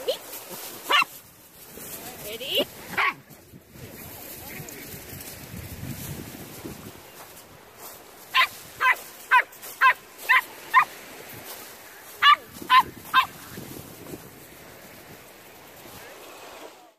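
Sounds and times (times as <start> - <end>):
small dog barking: 0.9 - 1.2, 2.9 - 3.2, 8.3 - 11.0, 12.2 - 13.5.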